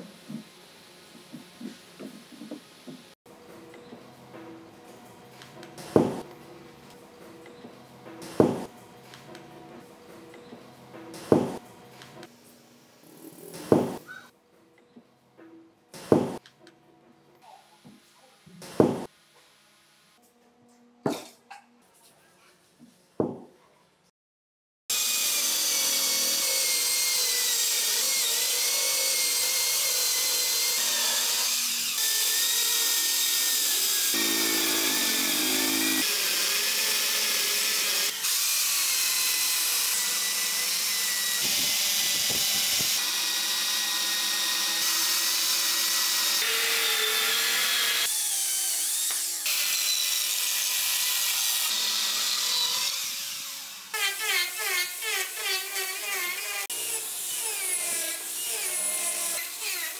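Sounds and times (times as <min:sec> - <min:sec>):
electric chainsaw cutting wood: 0:24.9 - 0:59.9
electric hand planer cutting wood: 0:24.9 - 0:59.9.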